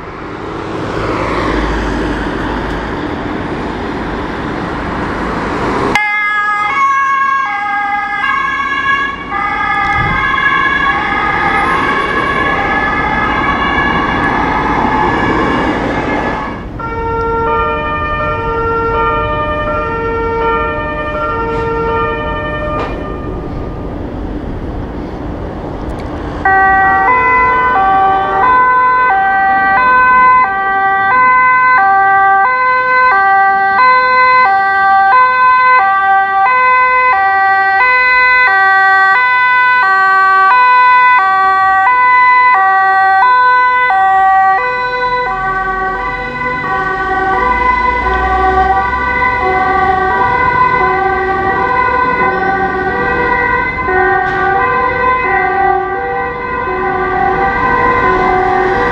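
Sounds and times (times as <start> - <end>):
truck diesel engine rumble: 0.0 - 32.5, 35.9 - 58.9
two-tone siren: 5.9 - 23.6, 26.4 - 58.9.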